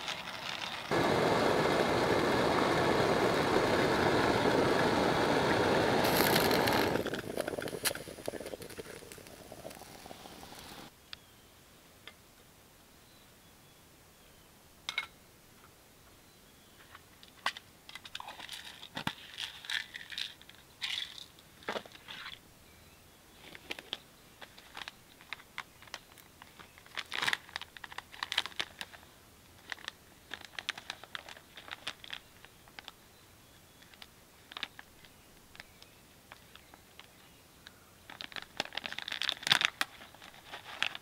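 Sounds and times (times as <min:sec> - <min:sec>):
plastic packet crinkling and tearing: 0:00.0 - 0:00.9, 0:06.0 - 0:10.7, 0:24.6 - 0:33.0, 0:38.1 - 0:41.0.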